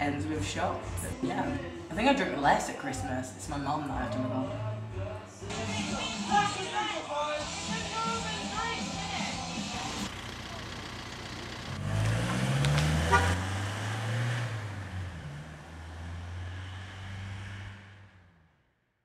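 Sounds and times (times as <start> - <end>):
van engine accelerating: 4.4 - 18.8
short horn toot: 13.0 - 13.4.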